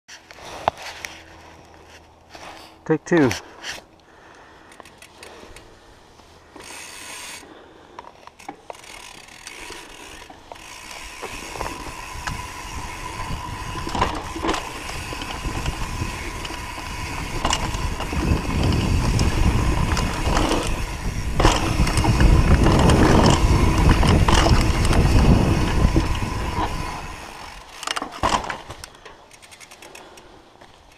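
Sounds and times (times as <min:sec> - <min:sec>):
wind and tyre rumble: 0:00.1 - 0:30.9
bicycle freewheel ratcheting: 0:04.7 - 0:05.7, 0:06.5 - 0:07.5, 0:08.2 - 0:30.3
knocks and rattles over bumps: 0:10.2 - 0:29.2.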